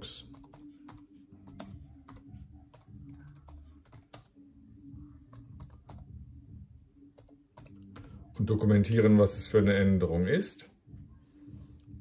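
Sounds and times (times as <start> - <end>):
low steady hum: 0.0 - 9.7
laptop keyboard typing: 0.2 - 4.4, 5.2 - 6.1, 7.1 - 8.2.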